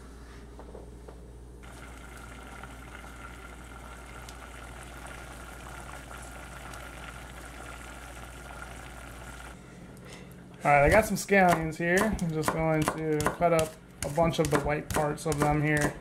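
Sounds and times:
sauce bubbling in a saucepan: 1.6s - 9.6s.

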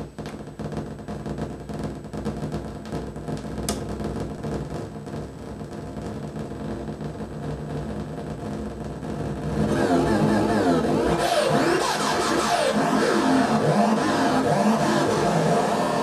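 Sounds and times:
electronic drone with glitchy texture: 6.1s - 16.0s.

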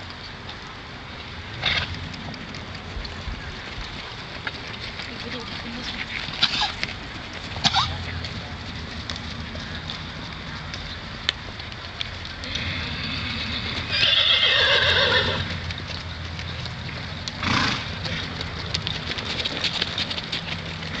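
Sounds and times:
hoofbeats: 0.0s - 21.0s
horse whinnying: 12.4s - 15.7s.

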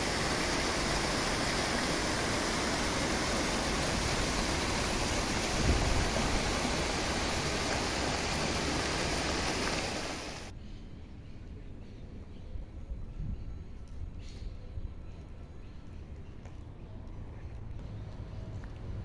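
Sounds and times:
fountain water splashing: 0.0s - 10.5s.

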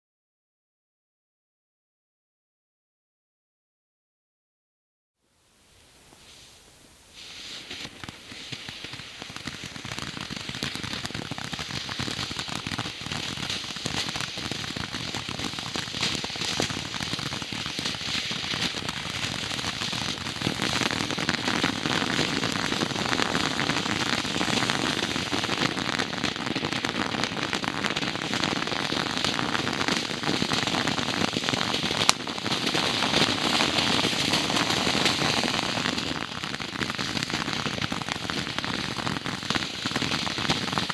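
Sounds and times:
firework fountain hissing sparks: 5.6s - 40.9s
sharp pop: 32.0s - 32.4s.

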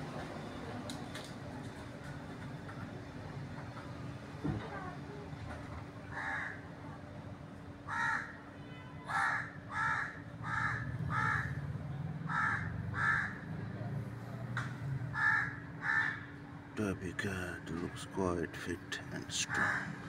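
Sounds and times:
low background hum: 0.0s - 20.0s
crow cawing: 6.1s - 6.7s, 7.9s - 8.4s, 9.1s - 11.6s, 12.3s - 13.5s, 15.1s - 16.3s, 19.4s - 20.0s.

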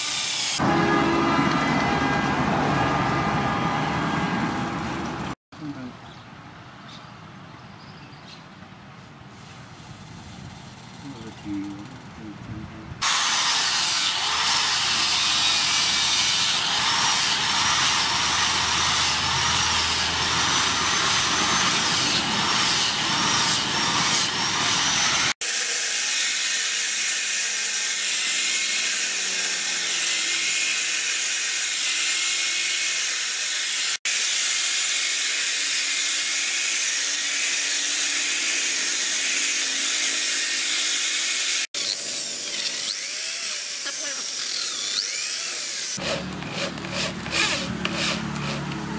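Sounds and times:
grinder sanding wood: 13.0s - 48.9s.

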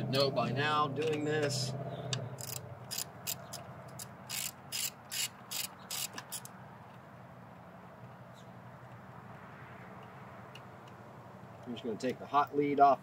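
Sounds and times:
socket ratchet clicking: 2.4s - 6.5s.

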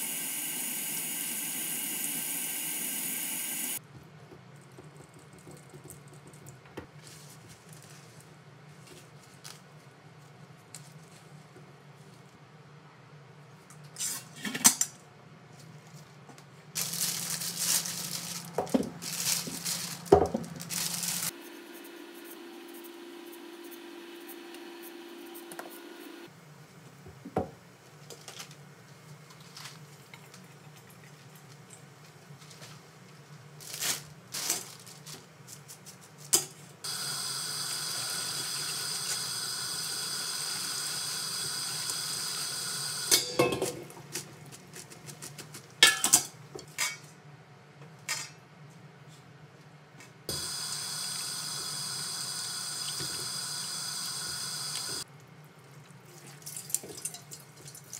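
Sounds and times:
utensils clinking on metal bowls: 43.1s - 43.9s, 45.8s - 47.1s.

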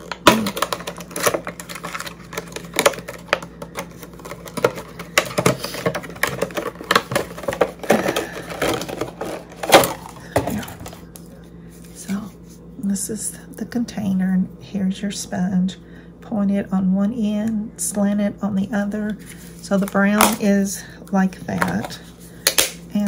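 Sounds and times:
plastic case clicking and crinkling: 0.0s - 11.0s.

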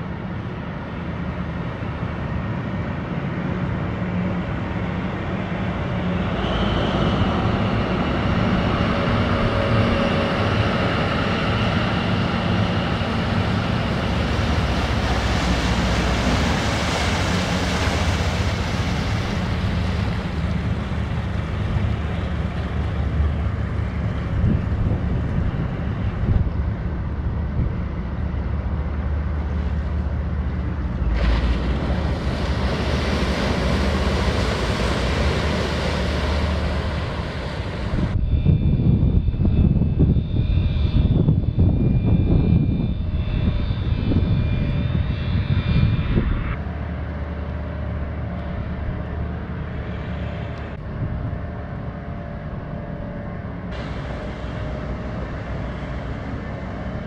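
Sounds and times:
boat engine hum: 0.0s - 40.6s, 41.4s - 57.0s
wind noise: 3.6s - 57.0s
water rushing: 4.8s - 27.1s, 28.5s - 38.2s, 53.7s - 57.0s.

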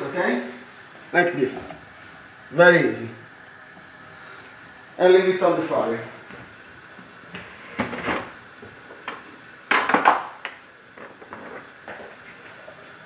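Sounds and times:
kitchen clatters and knocks: 9.7s - 10.4s.

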